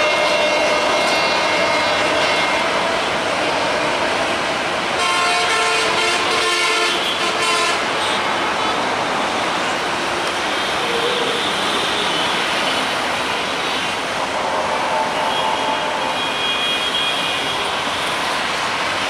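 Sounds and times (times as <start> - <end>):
locomotive horn: 0.0 - 4.0, 5.0 - 8.2, 14.4 - 18.0
train rumbling past: 0.0 - 19.0.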